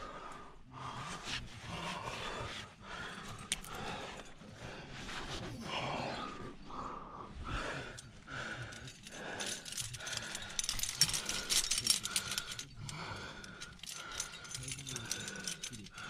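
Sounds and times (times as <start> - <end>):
carabiners clinking and jangling: 3.1 - 4.4, 7.7 - 16.0.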